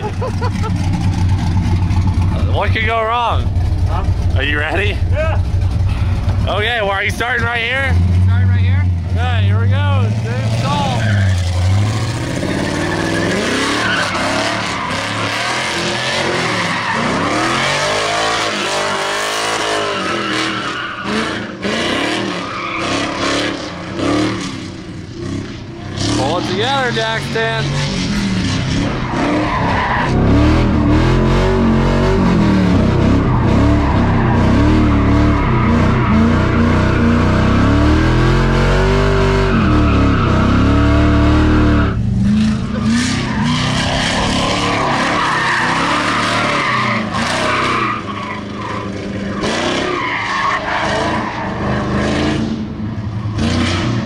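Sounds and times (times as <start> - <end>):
car engine revving: 0.0 - 54.0
tires skidding and squealing: 0.0 - 54.0.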